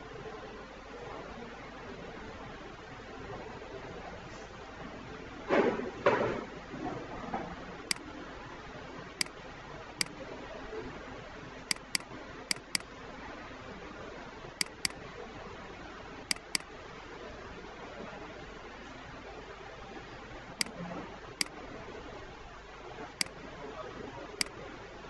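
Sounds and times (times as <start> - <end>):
faint steady hiss: 7.6 - 25.0
mouse button clicking: 11.7 - 12.8, 14.6 - 15.0, 16.3 - 16.7.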